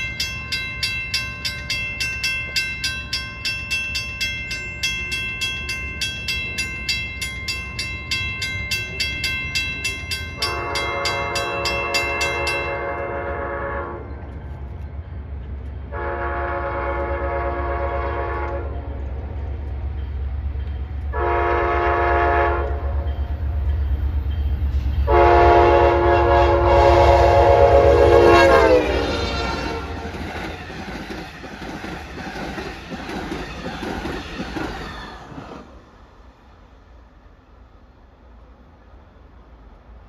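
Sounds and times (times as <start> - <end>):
low locomotive rumble: 0.0 - 40.0
train horn blasts: 10.4 - 14.2, 15.9 - 19.0, 21.1 - 23.2, 25.0 - 30.1
train wheels clicking over rails: 28.6 - 36.0.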